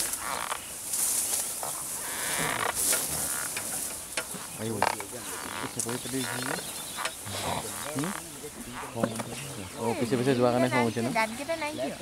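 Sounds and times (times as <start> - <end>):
creaks: 0.0 - 9.5
dry grass rustling and crackling: 0.0 - 11.8.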